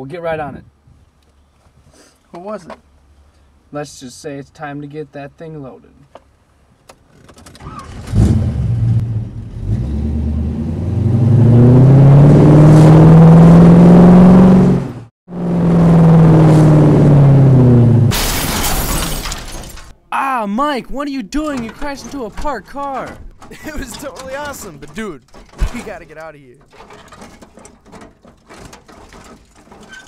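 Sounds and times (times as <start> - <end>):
car engine accelerating: 8.1 - 18.1.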